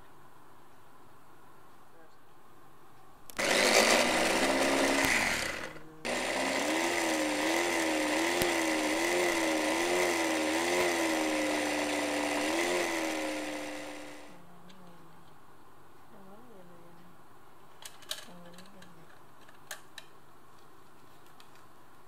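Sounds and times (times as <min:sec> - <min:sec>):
electric hand mixer whirring: 0:03.4 - 0:14.4.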